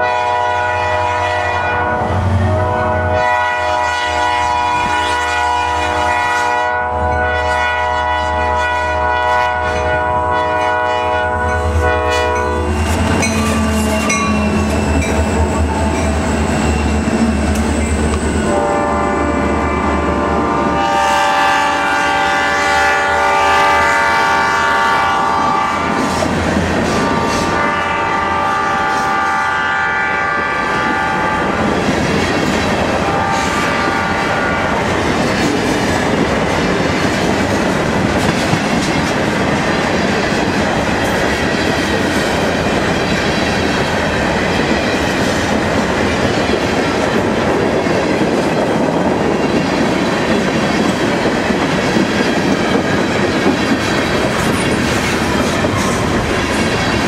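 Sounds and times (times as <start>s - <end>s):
locomotive horn: 0.0s - 16.2s, 16.9s - 26.2s, 26.8s - 31.8s, 32.9s - 34.9s
freight cars rumbling and clattering: 12.4s - 18.6s, 34.7s - 57.0s.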